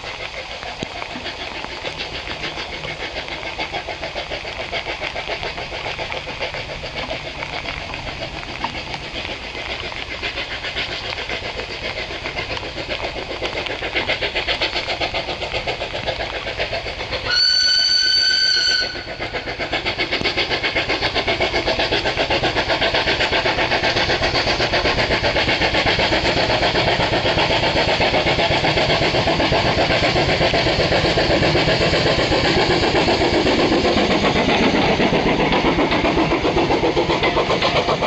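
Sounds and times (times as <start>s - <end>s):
steam locomotive exhaust chuffs: 0.0s - 38.0s
shrill steam whistle: 17.2s - 19.4s.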